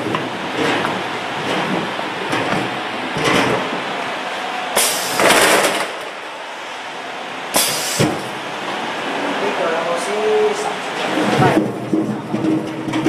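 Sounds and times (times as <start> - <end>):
potatoes clattering on conveyor: 0.0 - 3.8, 10.2 - 13.0.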